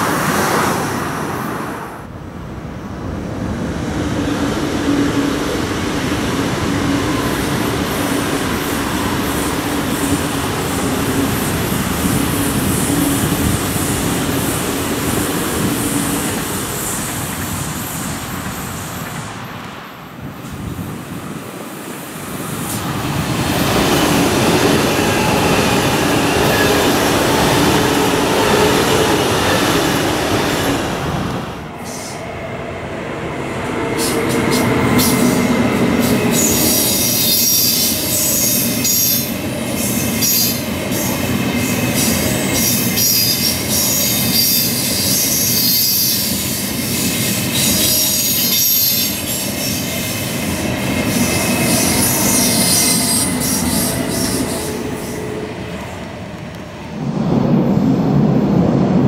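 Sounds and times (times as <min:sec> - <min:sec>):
electric train passing: 0:00.0 - 0:59.0
wheels hissing on rails: 0:05.4 - 0:32.4, 0:33.8 - 0:56.5.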